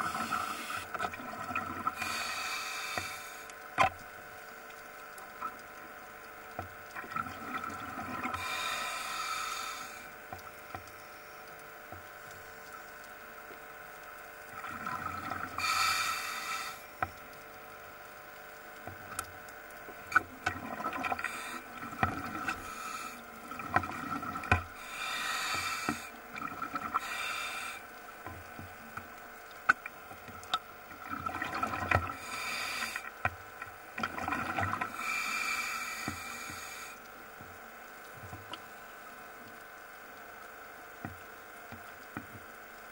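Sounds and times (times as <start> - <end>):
exhaled bubbles underwater: 0.0 - 2.2, 6.9 - 8.7, 14.4 - 16.9, 19.0 - 33.2, 33.8 - 35.3
faint steady hum: 0.0 - 42.9.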